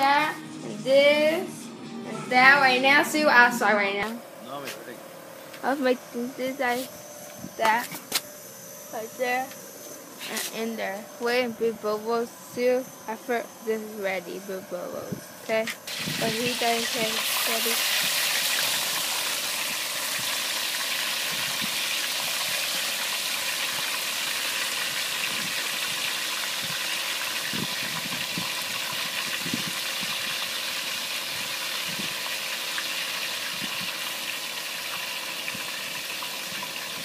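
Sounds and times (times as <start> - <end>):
oil sizzling: 15.6 - 37.0.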